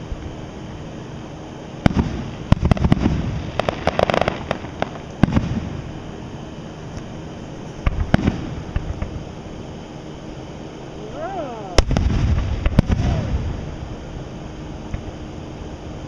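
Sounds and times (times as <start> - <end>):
fireworks bangs: 1.8 - 5.9, 7.8 - 9.2, 11.8 - 13.8
fireworks crackling pops: 1.8 - 5.9, 6.9 - 9.3, 11.8 - 13.8, 14.9 - 15.2.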